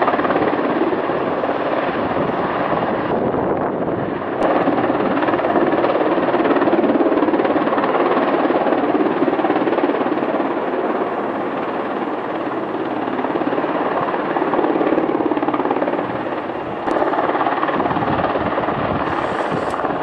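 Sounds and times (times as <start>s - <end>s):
helicopter rotor chopping: 0.0s - 20.0s
turbines running: 11.0s - 20.0s.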